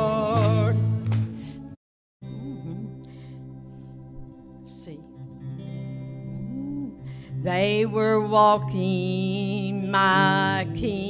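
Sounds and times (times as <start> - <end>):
soft electric guitar: 2.2 - 11.0.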